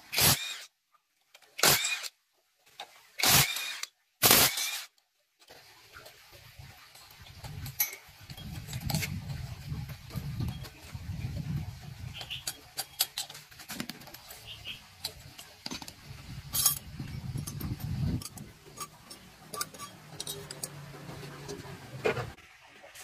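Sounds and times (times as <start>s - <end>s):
metallic clicks and clinks: 12.2s - 14.4s, 15.0s - 21.6s.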